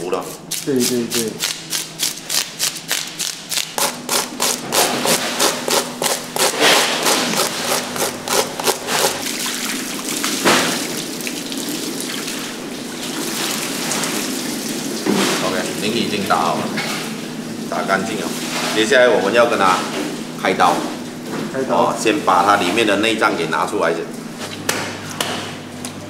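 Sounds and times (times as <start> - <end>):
fish scaler rasping: 0.2 - 9.4
water pouring and splashing: 8.7 - 15.6.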